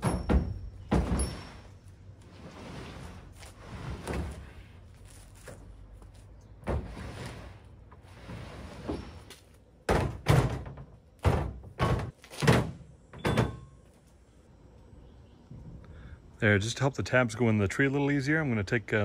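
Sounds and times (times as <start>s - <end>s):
loud thunks: 0.0s - 1.4s, 9.9s - 13.7s.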